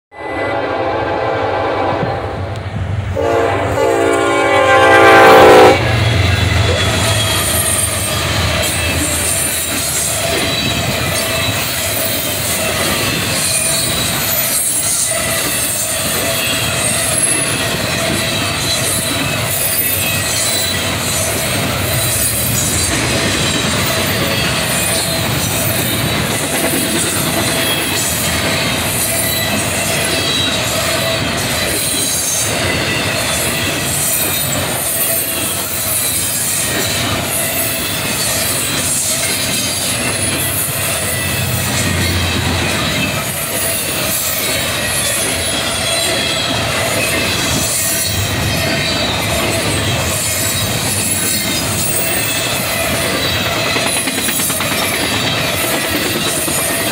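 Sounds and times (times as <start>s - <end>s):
locomotive horn chord: 0.1s - 2.6s, 3.2s - 7.3s
train wheels clacking and squealing: 5.6s - 56.9s.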